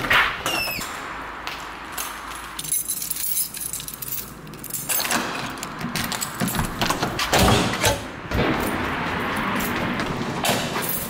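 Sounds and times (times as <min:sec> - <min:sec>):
door swinging shut: 0:00.1 - 0:00.8
keys jangling: 0:01.9 - 0:07.1.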